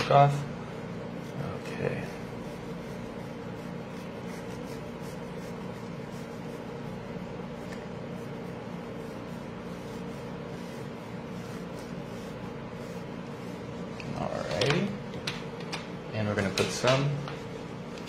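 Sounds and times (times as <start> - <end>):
steady room hum: 0.0 - 18.0
chocolate rasping on a grater: 1.0 - 14.8.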